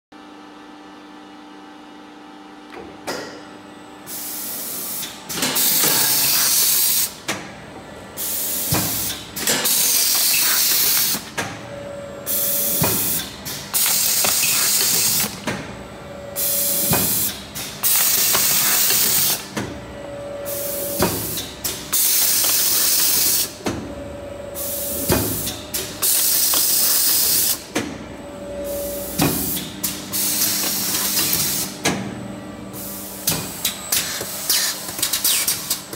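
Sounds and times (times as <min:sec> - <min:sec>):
machine humming: 0:03.6 - 0:35.9
machine clunks and clicks: 0:20.9 - 0:23.9, 0:25.0 - 0:28.0, 0:29.1 - 0:32.2.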